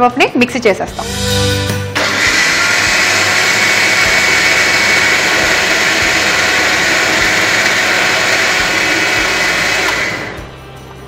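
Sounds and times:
mixer grinder whirring: 2.0 - 10.5.

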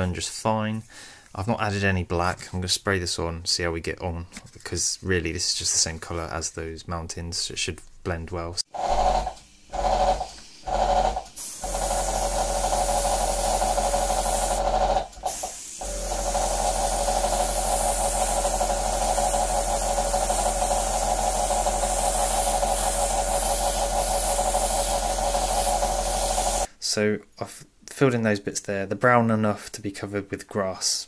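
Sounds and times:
air compressor humming: 8.7 - 26.7
airbrush hissing: 8.8 - 26.7.

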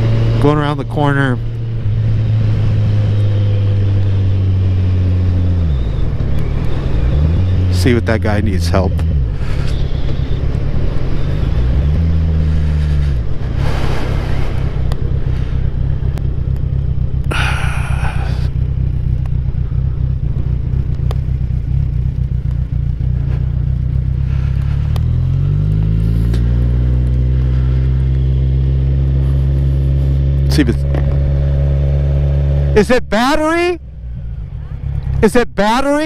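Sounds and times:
motorcycle engine idling and revving: 0.0 - 36.0.

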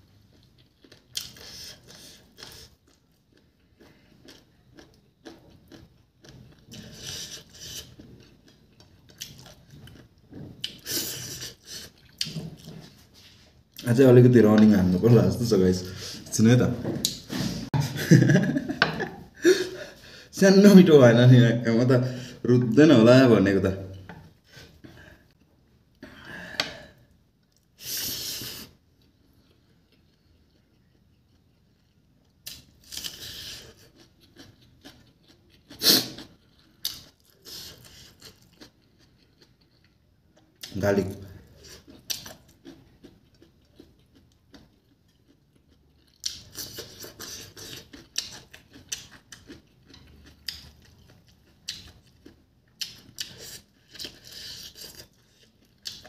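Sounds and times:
wet chewing mouth sounds: 41.5 - 56.0.

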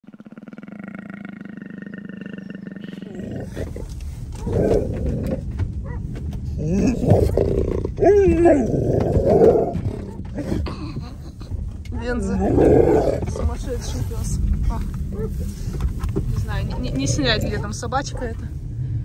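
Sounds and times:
animal growls and yowls: 0.0 - 5.5, 6.6 - 10.6
low rumble in car cabin: 2.9 - 19.0.

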